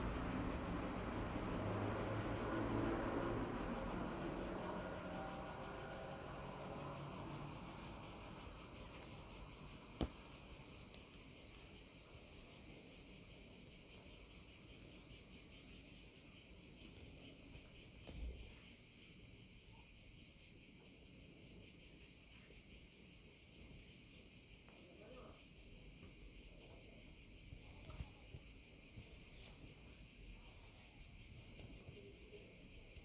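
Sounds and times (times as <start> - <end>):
faint high-pitched hiss: 0.0 - 33.0.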